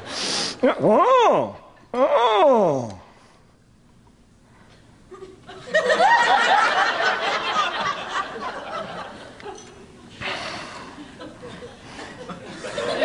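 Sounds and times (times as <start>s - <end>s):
audience laughing: 5.2s - 9.6s, 10.2s - 13.0s.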